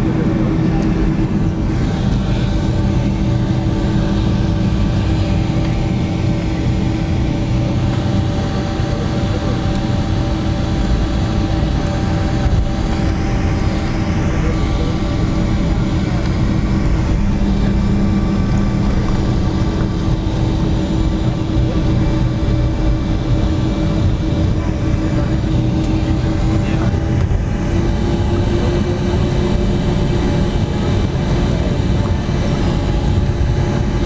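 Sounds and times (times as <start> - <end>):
jet engines low rumble: 0.0 - 34.0
steady tonal hum: 0.0 - 34.0.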